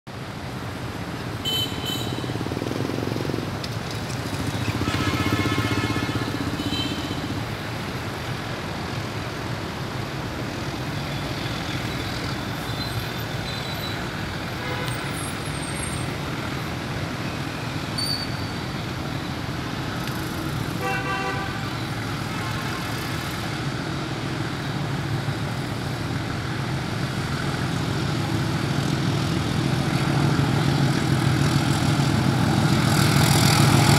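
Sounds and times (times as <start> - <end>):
city traffic noise: 0.0 - 33.9
diesel locomotive rumble: 0.1 - 33.9
car horn honking: 1.4 - 2.3, 4.8 - 7.3, 20.8 - 21.6.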